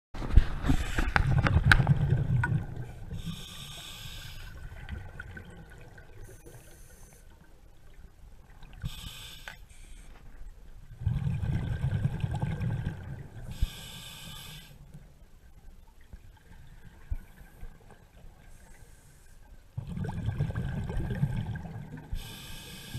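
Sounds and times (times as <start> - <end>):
exhaled bubbles rumbling: 0.4 - 3.4, 4.6 - 6.3, 10.8 - 13.6, 19.8 - 22.1
hissing regulator inhalations: 3.2 - 4.6, 8.9 - 10.1, 13.5 - 14.8, 22.2 - 22.9.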